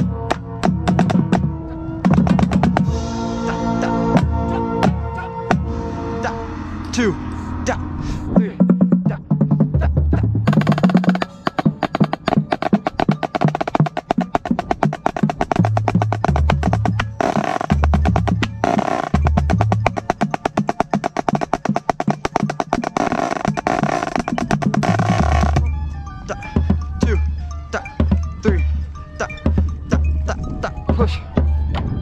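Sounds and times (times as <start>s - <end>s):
snare drum strokes and rolls: 0.0s - 3.4s, 8.6s - 25.7s
lower pitched drum notes: 0.0s - 32.0s.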